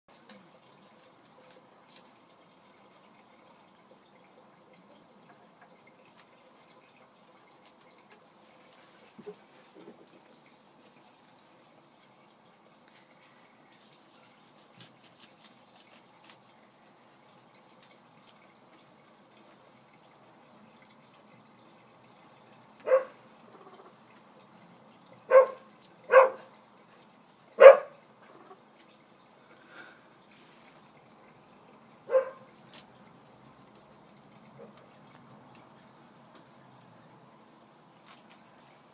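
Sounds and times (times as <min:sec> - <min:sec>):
dog barking: 0:22.8 - 0:23.2, 0:25.3 - 0:26.5, 0:27.6 - 0:28.0, 0:32.1 - 0:32.5.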